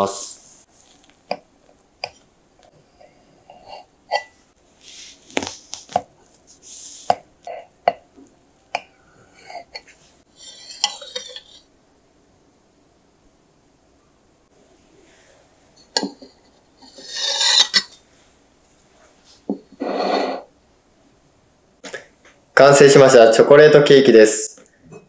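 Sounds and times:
knife scraping and rustling: 9.4 - 11.7, 15.8 - 18.0.

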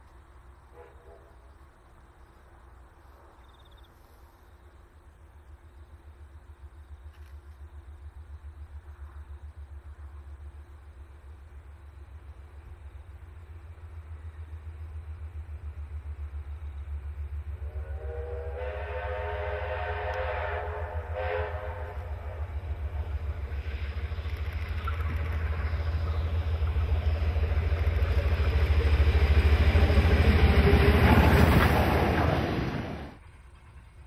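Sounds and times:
wheels rumbling on rails: 0.0 - 34.0
steam locomotive exhaust beating: 7.6 - 34.0
steam whistle: 17.6 - 23.0.

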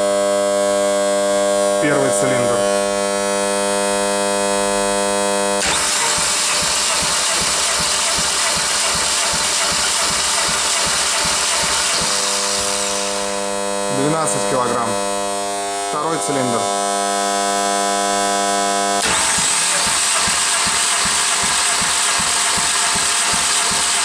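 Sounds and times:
electrical hum: 1.5 - 19.1
engine cranking with low pulses: 5.6 - 13.9, 19.0 - 24.0.

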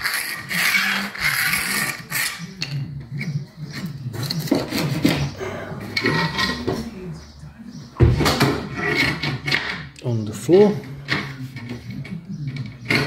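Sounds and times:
pencil scratching on concrete: 0.0 - 5.2.

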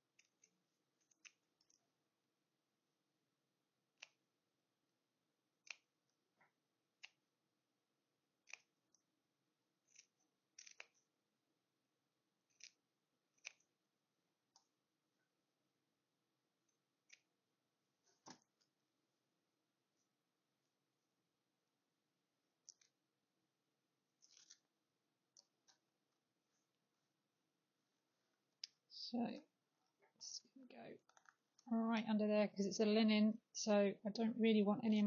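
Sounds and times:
small scissors snipping: 0.1 - 1.8, 3.9 - 4.2, 5.6 - 6.0, 7.0 - 7.2, 8.4 - 9.0, 9.8 - 11.1, 12.4 - 13.8, 17.0 - 17.3, 24.2 - 24.6.

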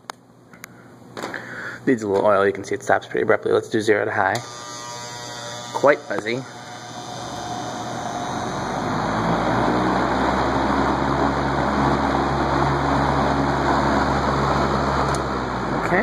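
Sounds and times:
fan motor buzzy hum: 0.0 - 16.0
box fan air rushing: 6.2 - 16.0.

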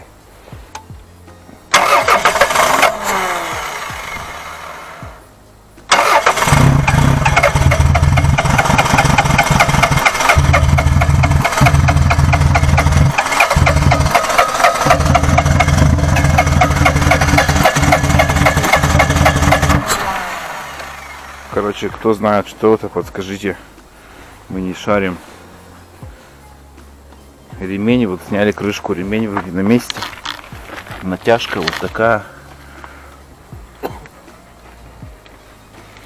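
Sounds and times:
engine cranking by starter motor: 1.7 - 5.2, 5.9 - 21.9.

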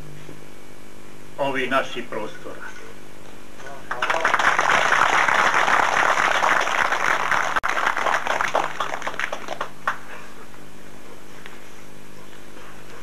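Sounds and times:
audience applauding: 3.9 - 10.0.

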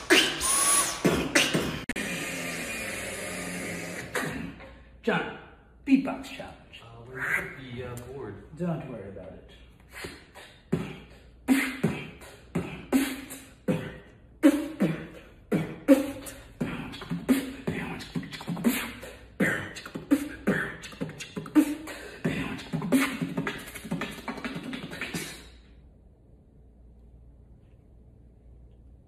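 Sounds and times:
person beatboxing: 0.0 - 4.9, 7.2 - 7.6, 9.8 - 25.7.

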